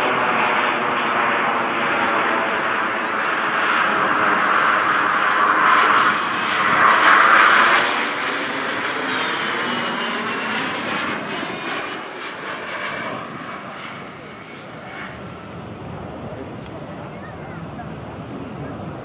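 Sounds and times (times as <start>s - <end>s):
jet aircraft flying past: 0.0s - 19.0s.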